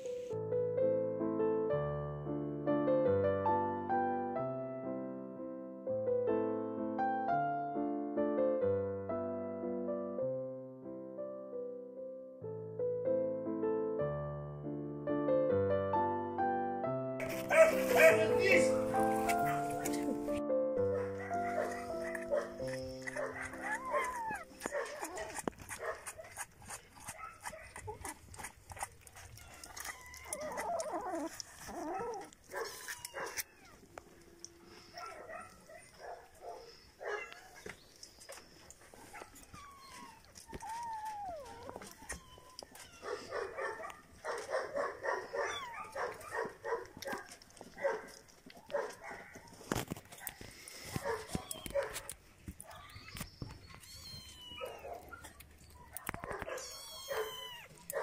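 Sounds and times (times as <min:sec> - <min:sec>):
pets calling: 0:17.3 - 0:33.9, 0:34.7 - 0:58.0.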